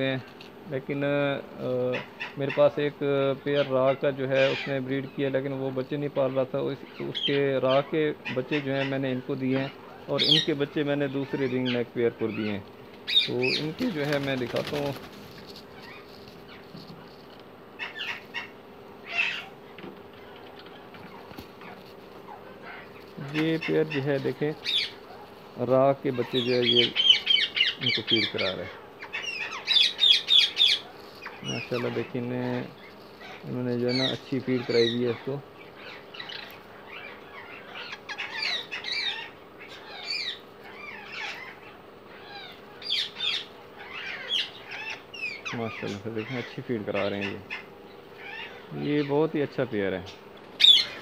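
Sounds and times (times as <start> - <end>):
faint steady hum: 0.0 - 51.0
parakeets calling harshly: 0.0 - 51.0
nestlings squeaky chirps: 1.9 - 51.0.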